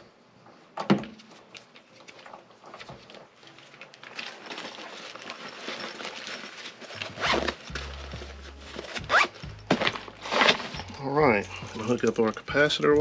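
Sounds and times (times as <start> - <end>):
handling rustle: 1.2 - 13.0
zipper being pulled: 4.7 - 10.9.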